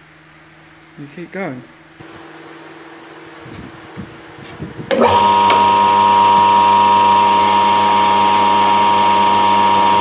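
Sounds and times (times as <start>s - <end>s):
lathe cutting with high squeal: 5.1s - 10.0s
high hiss: 7.2s - 10.0s.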